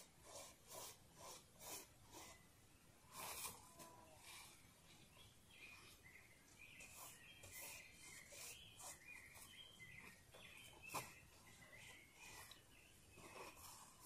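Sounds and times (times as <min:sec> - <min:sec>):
faint high bird calls: 0:03.3 - 0:14.0.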